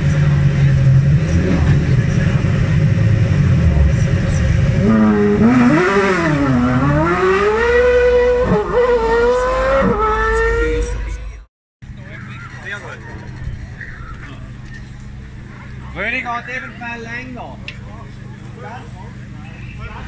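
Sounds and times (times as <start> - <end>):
race engine idling: 0.0 - 7.0, 11.8 - 20.0
race car engine accelerating: 0.0 - 11.4.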